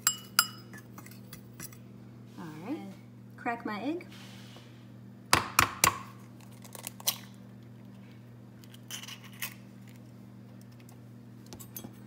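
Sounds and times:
low steady hum: 0.0s - 12.0s
egg shell cracking: 5.6s - 7.4s.

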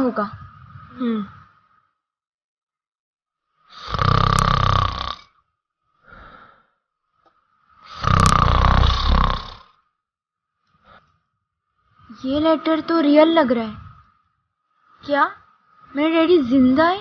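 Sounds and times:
faint breath: 0.1s - 2.1s, 5.9s - 8.3s, 10.6s - 12.8s
person snoring: 3.7s - 5.4s, 7.8s - 9.8s.

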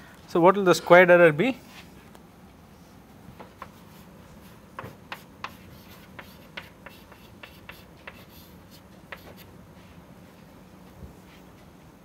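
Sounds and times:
faint low room hum: 0.0s - 12.0s
chalk tapping and scratching: 3.4s - 9.5s.

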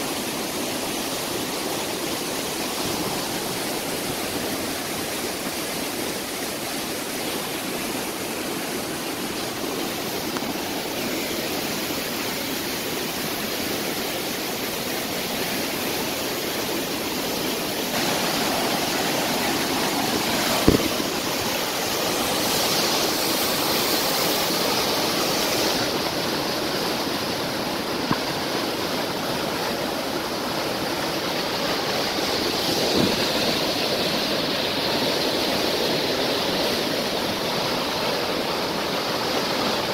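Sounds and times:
floodwater rushing: 0.0s - 39.9s
sharp knocks: 20.6s - 21.0s.

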